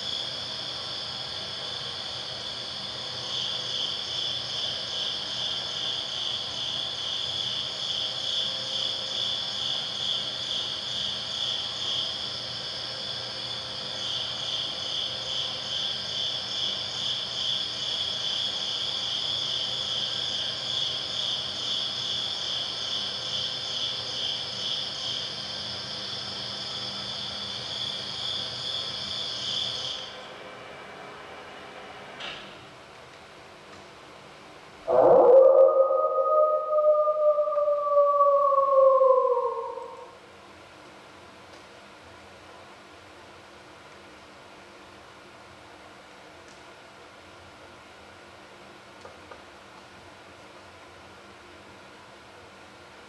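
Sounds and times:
high pulsing chirr: 34.9 - 40.2.

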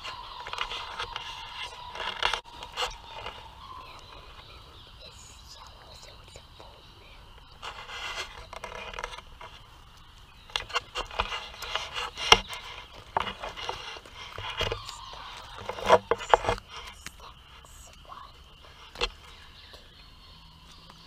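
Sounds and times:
scraping on camera microphone: 7.5 - 9.7, 10.5 - 17.4.

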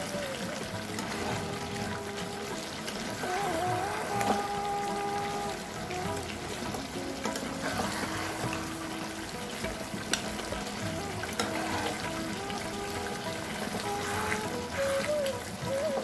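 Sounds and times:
soft background music: 0.0 - 16.0
spatula scraping a pan: 6.5 - 13.0.

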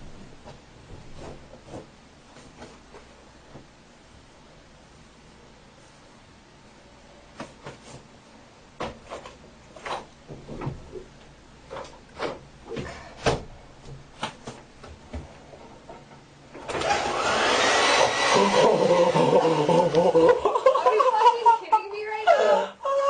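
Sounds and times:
hair dryer blowing: 16.7 - 20.4.

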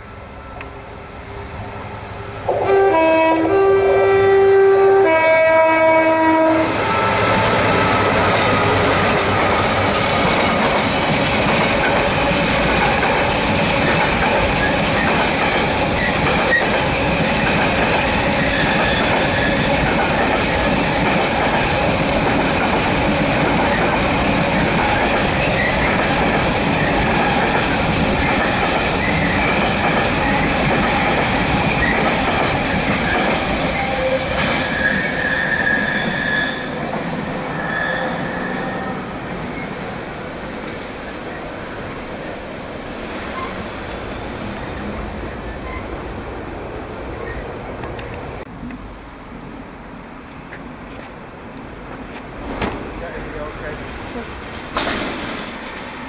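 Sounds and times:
freight train wheel rumble: 0.0 - 35.5, 38.2 - 56.0
two-tone train horn: 2.4 - 7.4
high wheel squeal: 33.8 - 36.8, 37.4 - 39.8.

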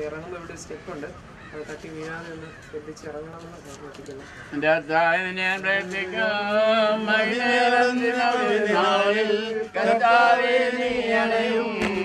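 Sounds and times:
slow hymn chant: 5.0 - 12.0.

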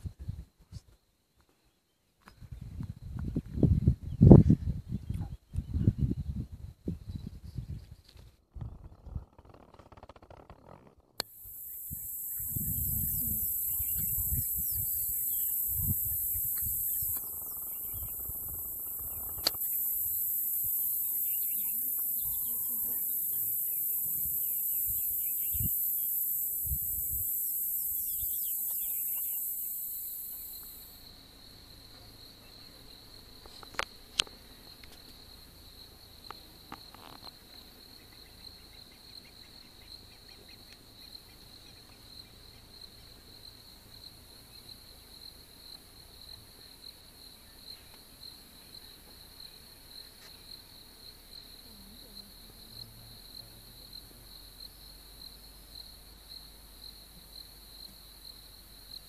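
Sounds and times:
cricket chirping: 0.0 - 59.0.

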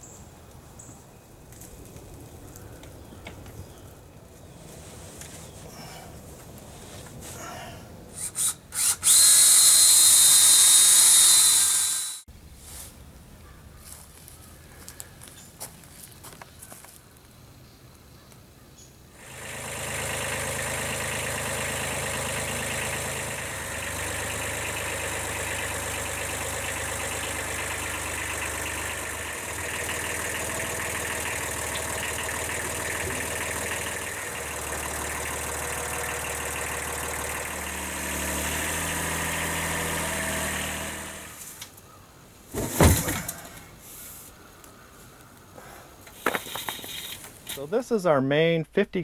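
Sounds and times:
tractor diesel engine running: 19.2 - 41.9.

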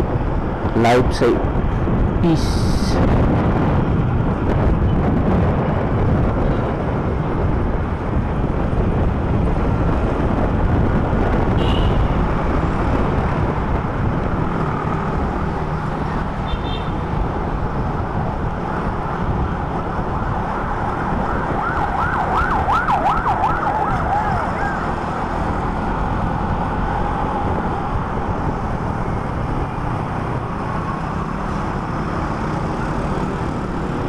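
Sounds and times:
wind noise: 0.0 - 34.0
siren wailing: 21.0 - 25.2.

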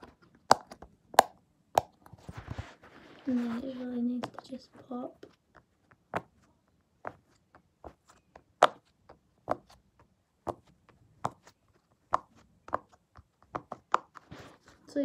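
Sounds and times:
pop-it fidget bubbles popping: 0.4 - 2.1.

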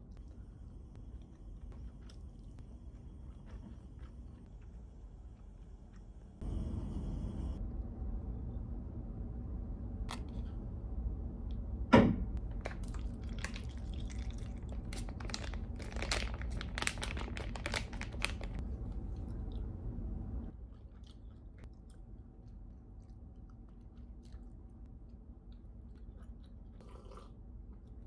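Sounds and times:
foil pouch crinkling: 12.6 - 18.6
soup pouring into cup: 26.8 - 27.4.

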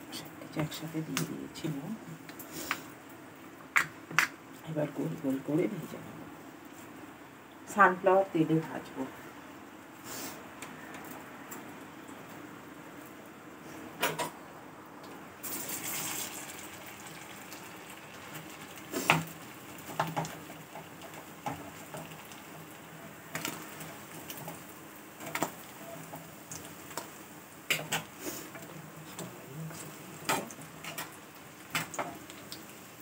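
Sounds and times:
food sizzling in hot oil: 15.4 - 33.0.

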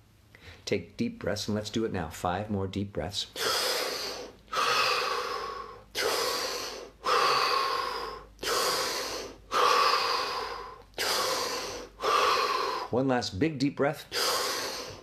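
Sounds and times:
man breathing deeply: 3.4 - 13.0, 14.1 - 15.0.

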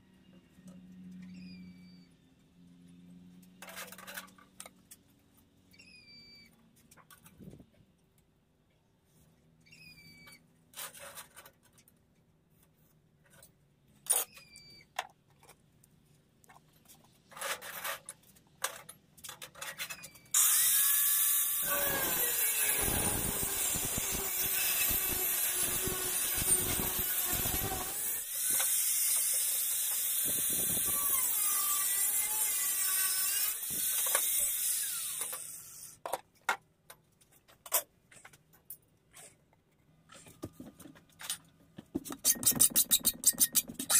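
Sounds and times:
angle grinder cutting steel: 20.4 - 36.0.

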